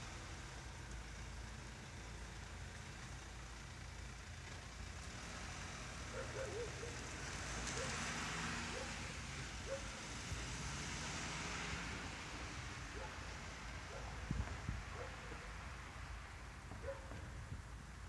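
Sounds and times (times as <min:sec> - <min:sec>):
road vehicle passing: 0:00.0 - 0:18.0.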